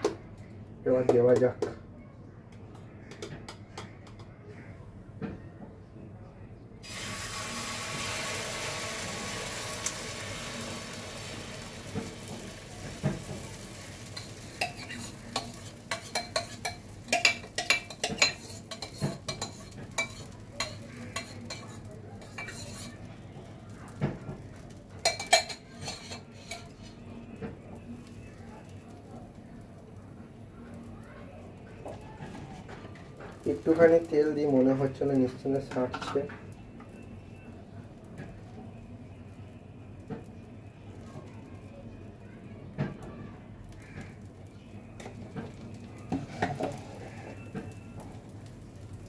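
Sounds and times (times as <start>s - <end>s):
batter sizzling in hot pan: 6.8s - 31.8s, 33.3s - 41.6s, 43.7s - 49.0s
spatula scraping and tapping pan: 13.0s - 23.0s, 25.0s - 27.0s, 45.0s - 47.8s.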